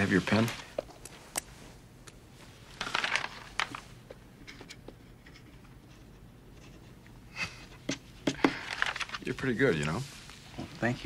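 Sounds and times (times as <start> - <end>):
paper pages rustling: 0.0 - 1.3, 2.5 - 4.0, 8.5 - 11.0.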